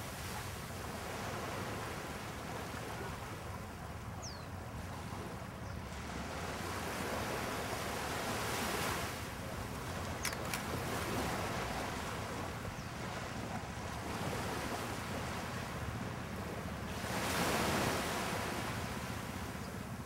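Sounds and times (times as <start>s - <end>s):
brief click: 10.2s - 10.7s.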